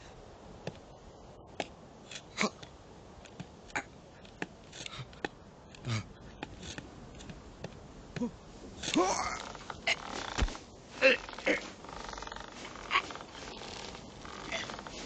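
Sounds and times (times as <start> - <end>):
hooves tapping on rock: 2.5 - 9.0.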